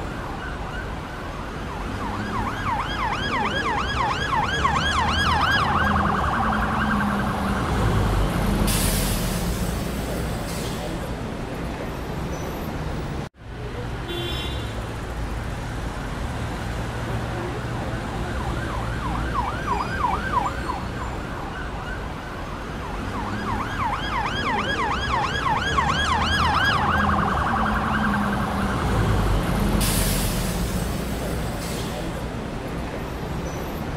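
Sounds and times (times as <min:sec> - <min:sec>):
emergency siren yelping: 0:00.0 - 0:08.3, 0:18.2 - 0:29.4
street traffic rumble: 0:00.0 - 0:33.9.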